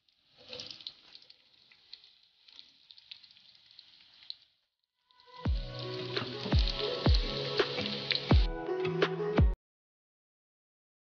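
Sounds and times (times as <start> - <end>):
vegetables sizzling in oil: 0.0 - 4.6, 5.2 - 8.5
music with deep boom: 5.5 - 7.4, 8.3 - 9.6.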